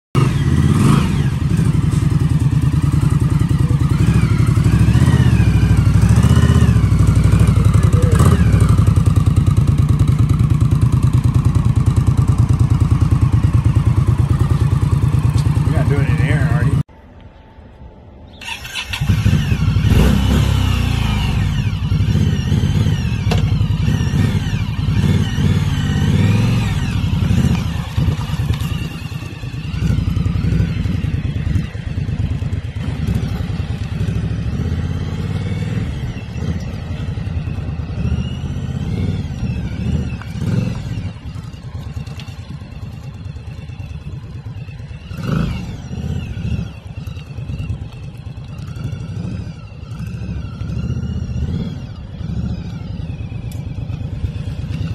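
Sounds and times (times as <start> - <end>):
motorcycle engine revving: 0.1 - 16.9, 18.4 - 54.9.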